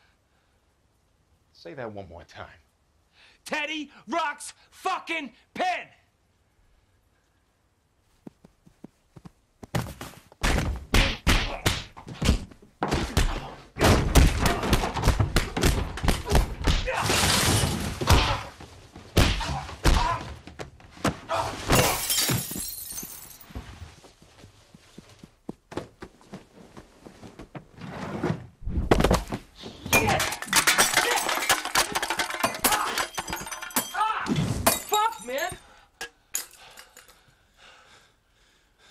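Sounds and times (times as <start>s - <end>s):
thuds of blows: 8.3s - 22.5s
objects knocked over and breaking: 13.8s - 18.6s, 21.5s - 23.6s, 28.8s - 35.6s
shattering crash: 17.0s - 18.2s, 29.9s - 35.1s.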